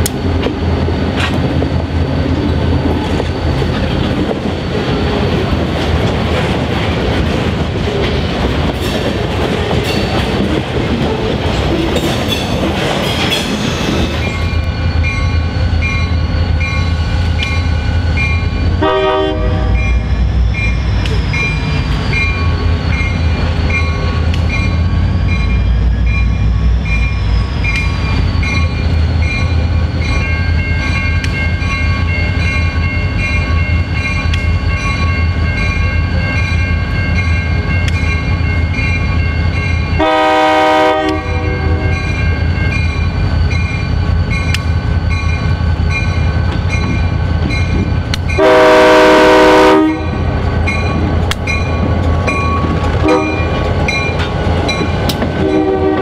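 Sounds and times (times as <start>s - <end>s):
diesel locomotives rumbling: 0.0s - 56.0s
locomotive horn blasts: 18.8s - 20.1s, 40.0s - 42.0s, 48.4s - 50.2s, 53.0s - 53.6s, 55.4s - 56.0s.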